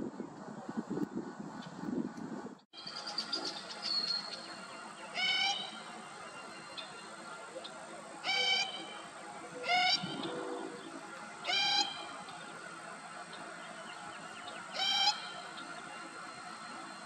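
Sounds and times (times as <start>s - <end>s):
grebe calling: 8.2s - 12.4s, 14.4s - 15.8s.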